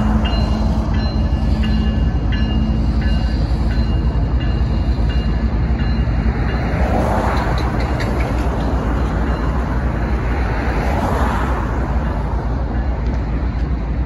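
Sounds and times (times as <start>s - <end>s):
road vehicles driving by: 0.0s - 14.0s
train rumbling past: 0.0s - 14.0s.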